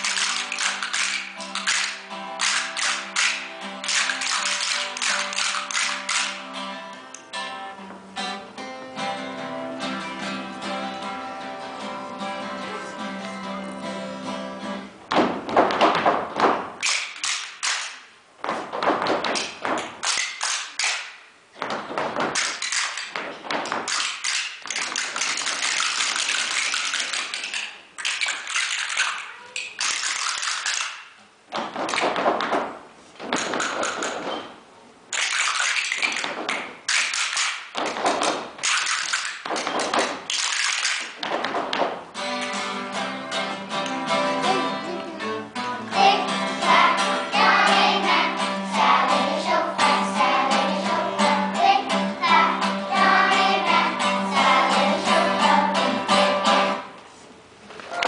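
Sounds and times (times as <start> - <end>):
wooden rhythm sticks clattering: 0.0 - 7.4, 15.1 - 44.5
acoustic guitar strumming: 1.2 - 15.0, 42.1 - 56.9
children singing: 44.2 - 56.8.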